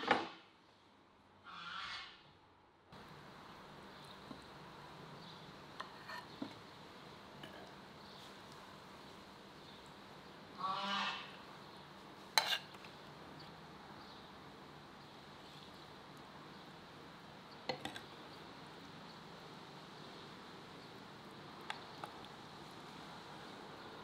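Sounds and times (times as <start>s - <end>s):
cutlery clinking on a plate: 12.4s - 12.8s.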